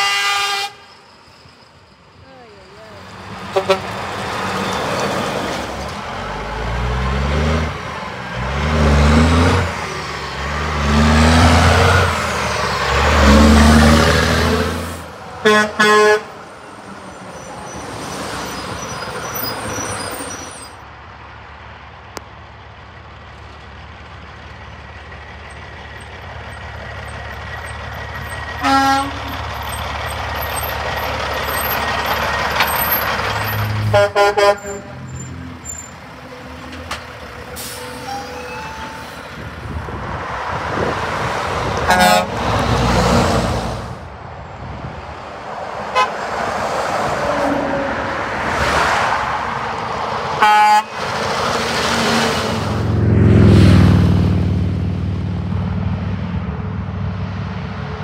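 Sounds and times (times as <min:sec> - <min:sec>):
truck horn blasts: 0:00.0 - 0:01.0, 0:03.4 - 0:04.1, 0:15.4 - 0:16.4, 0:28.6 - 0:29.4, 0:33.8 - 0:35.8, 0:41.8 - 0:42.6, 0:45.9 - 0:46.2, 0:50.4 - 0:51.1
truck passing: 0:00.0 - 0:58.0
truck accelerating through gears: 0:03.0 - 0:20.8, 0:23.2 - 0:45.1, 0:46.0 - 0:58.0.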